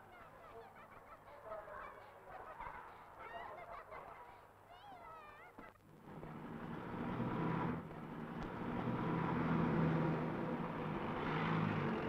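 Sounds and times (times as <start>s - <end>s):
vehicles passing: 5.9s - 12.0s.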